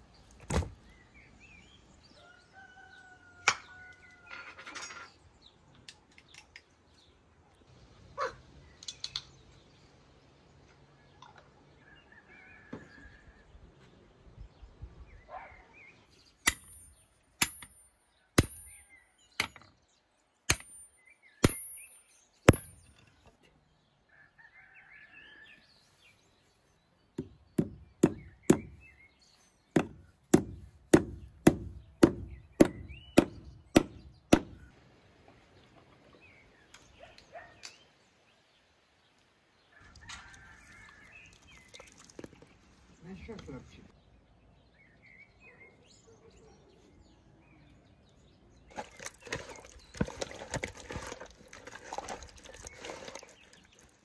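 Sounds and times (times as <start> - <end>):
sharp metallic strikes with ringing: 20.5 - 22.9.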